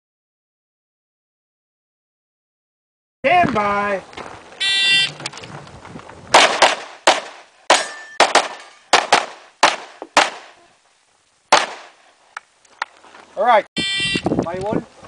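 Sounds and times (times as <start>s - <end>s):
pistol shots echoing: 6.3s - 10.6s, 11.5s - 12.0s.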